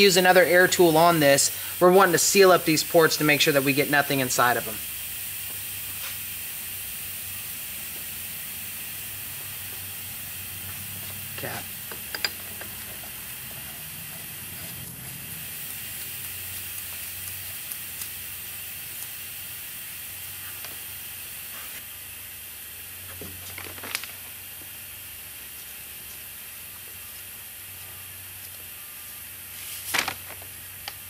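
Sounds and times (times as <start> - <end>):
workshop hiss: 0.0 - 31.0.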